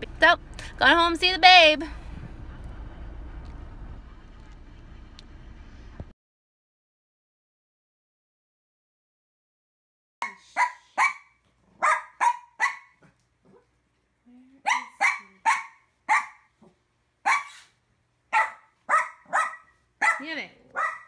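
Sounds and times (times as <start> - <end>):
small dog barking: 10.2 - 13.6, 14.6 - 17.7, 18.3 - 21.0.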